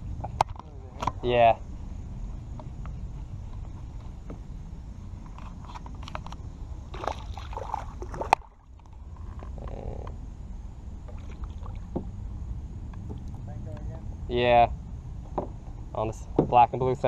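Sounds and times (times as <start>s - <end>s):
fish thrashing and splashing: 6.9s - 8.8s.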